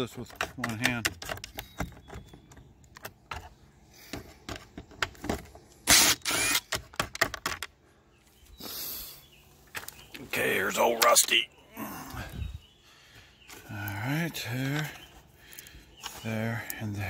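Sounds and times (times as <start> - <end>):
cordless drill running: 5.9 - 6.7
drill bit and screw rattling: 5.9 - 6.9.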